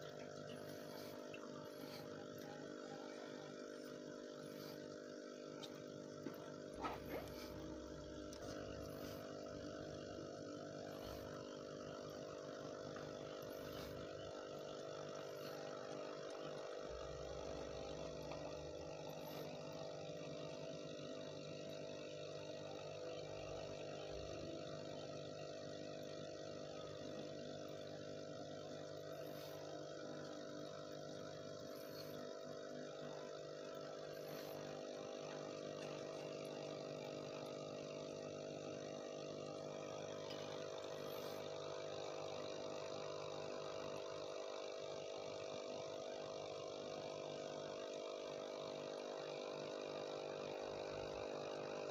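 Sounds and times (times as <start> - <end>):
air pump humming: 0.0 - 51.9.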